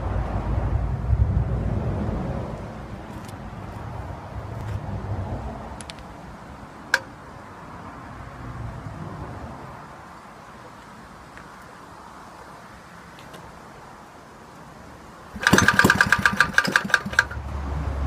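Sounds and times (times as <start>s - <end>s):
low rumble: 0.0s - 3.0s.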